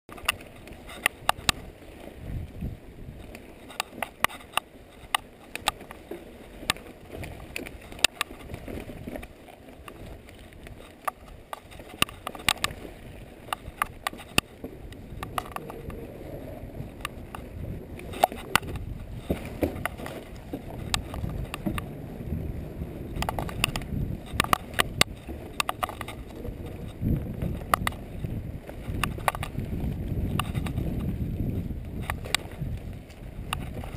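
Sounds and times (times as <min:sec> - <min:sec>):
bike tyres rumbling over rock: 0:14.7 - 0:33.9
bike rattling and clacking: 0:15.1 - 0:16.0, 0:23.1 - 0:31.2.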